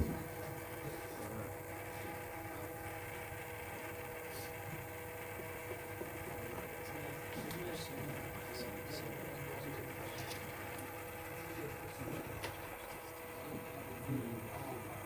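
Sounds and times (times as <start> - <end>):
faint steady hum: 0.0 - 15.0
thin steady tones: 0.0 - 15.0.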